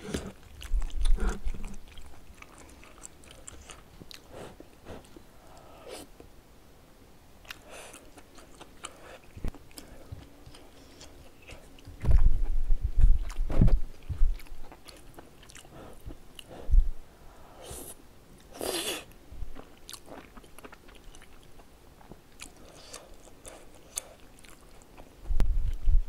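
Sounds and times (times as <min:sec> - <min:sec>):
soft chewing: 0:00.0 - 0:06.3, 0:07.4 - 0:17.0, 0:17.7 - 0:26.0
dull low thumps: 0:12.0 - 0:14.5, 0:16.6 - 0:17.0, 0:25.3 - 0:26.0.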